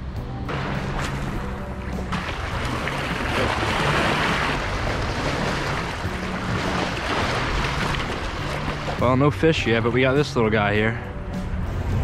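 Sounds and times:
small waves splashing on rocks: 0.6 - 9.2.

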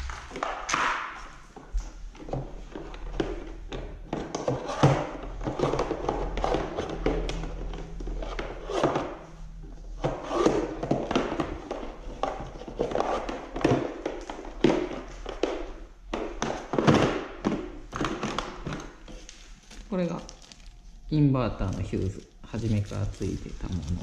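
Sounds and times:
cables rustling in plastic toolbox: 17.9 - 24.0
faint low hum: 18.5 - 24.0.

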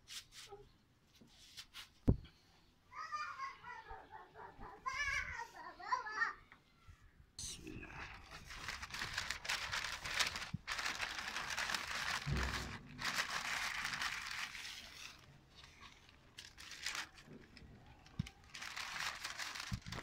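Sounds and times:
paper crinkling and rustling: 7.8 - 20.0
soft low thump: 12.2 - 13.2.

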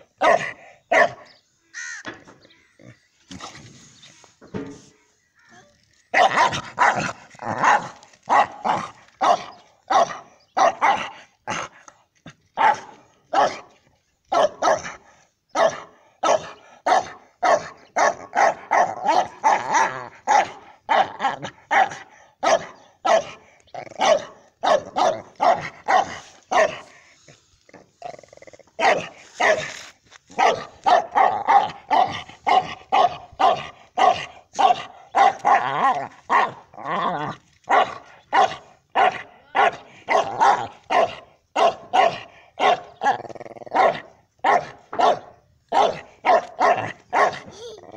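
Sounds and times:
dog barking: 0.2 - 1.3, 6.1 - 11.6, 12.6 - 13.7, 14.3 - 23.4, 24.0 - 26.9, 28.8 - 29.7, 30.3 - 36.6, 37.7 - 47.6.

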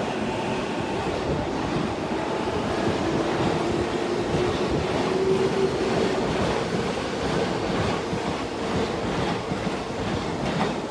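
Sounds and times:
train wheels clattering on rails: 2.6 - 10.9.

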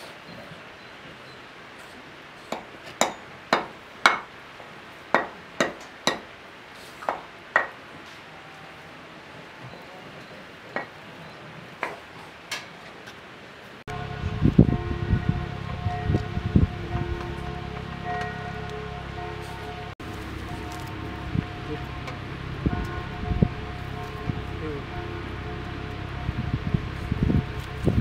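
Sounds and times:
low steady hiss: 0.0 - 28.0
sharp ringing knocks: 13.9 - 28.0.

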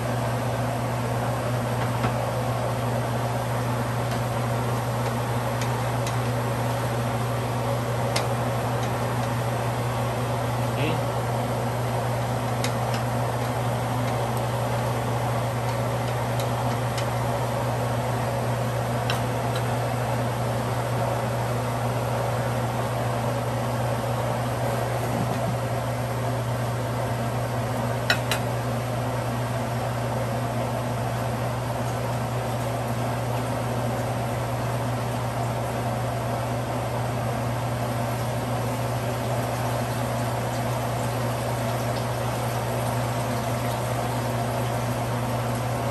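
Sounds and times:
fan motor humming: 0.0 - 45.9.

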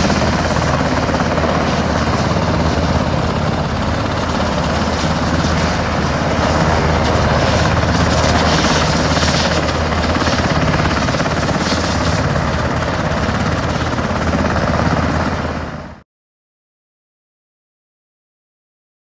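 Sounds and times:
helicopter rotor and turbine din: 0.0 - 16.0.

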